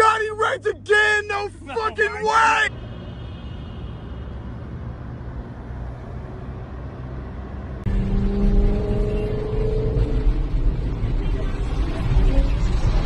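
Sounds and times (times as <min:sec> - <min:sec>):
car engine and road noise: 0:00.0 - 0:13.0
low rumble in tunnel: 0:02.7 - 0:13.0.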